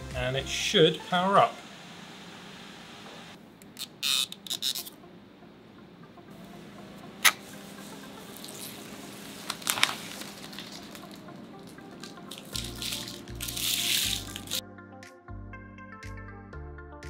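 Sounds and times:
plastic film crackling: 8.2s - 14.6s.

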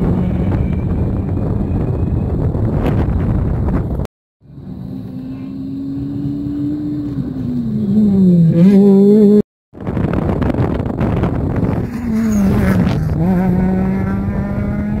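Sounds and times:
rally car engine revving: 11.0s - 15.0s.

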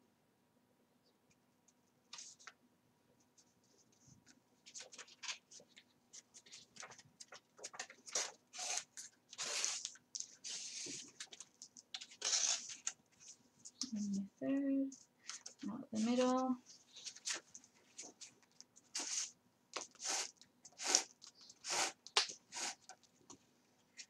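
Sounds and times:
card pages rustling: 4.6s - 14.0s, 15.2s - 23.1s.

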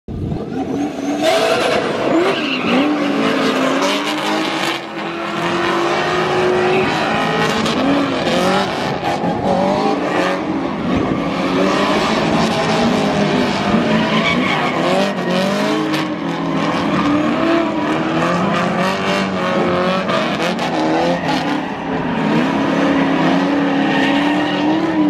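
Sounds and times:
car engines revving: 0.1s - 25.0s
tyres screeching: 11.5s - 15.9s.

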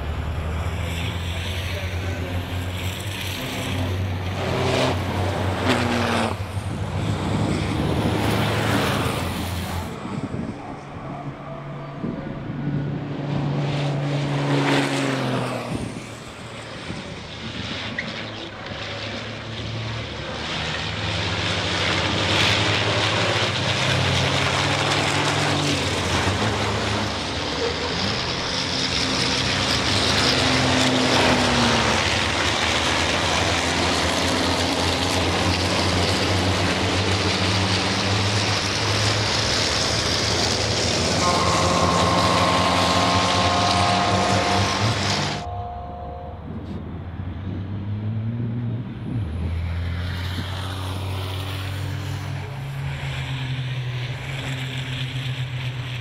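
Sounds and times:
racing diesel engines accelerating: 0.0s - 56.0s.

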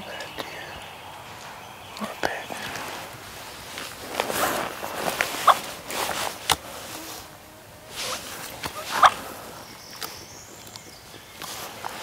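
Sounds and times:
clothing and leaf litter rustling: 2.4s - 12.0s.

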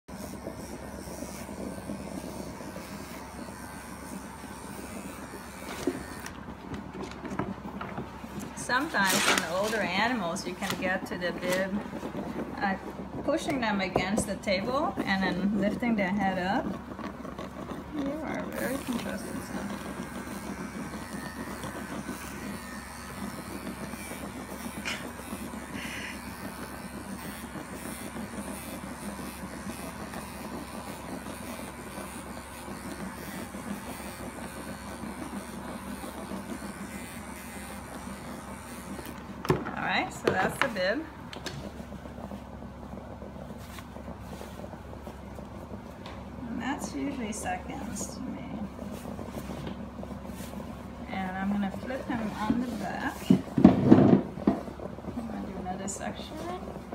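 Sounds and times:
electric clippers buzzing: 0.0s - 42.3s.

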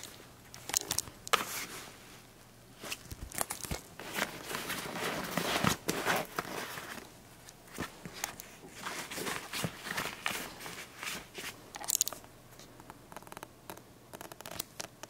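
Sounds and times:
fabric rustling and crinkling: 0.0s - 11.6s.

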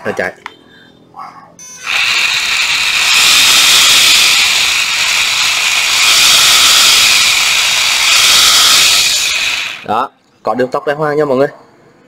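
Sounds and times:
reciprocating saw whirring: 1.8s - 9.9s.

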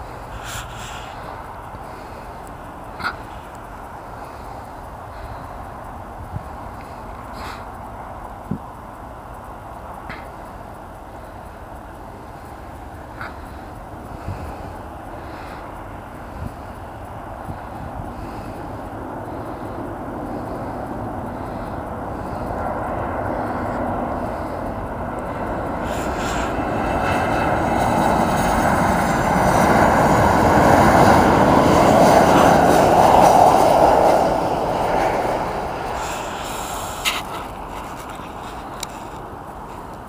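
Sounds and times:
jet engines of landing airliner: 0.0s - 40.0s.

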